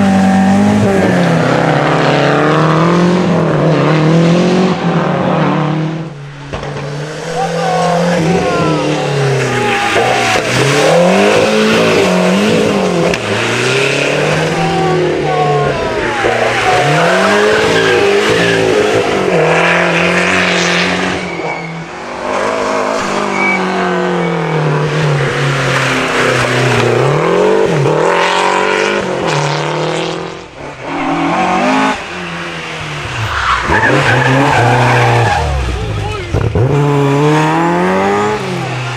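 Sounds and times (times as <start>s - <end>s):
rally car engines revving: 0.0s - 38.9s
tyre squeal: 20.3s - 22.0s, 23.2s - 24.7s, 33.0s - 35.8s.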